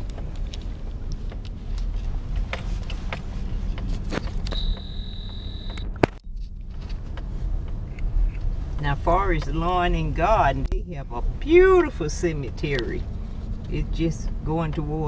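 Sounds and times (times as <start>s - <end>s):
truck engine and road noise: 0.0s - 15.0s
steady high tone: 4.5s - 5.9s.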